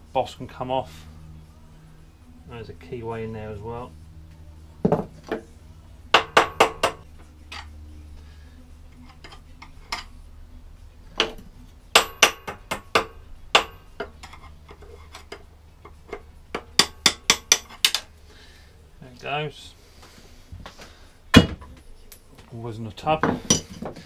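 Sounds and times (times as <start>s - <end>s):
hammer tapping on metal: 6.1s - 7.7s, 11.2s - 14.1s, 15.8s - 18.0s.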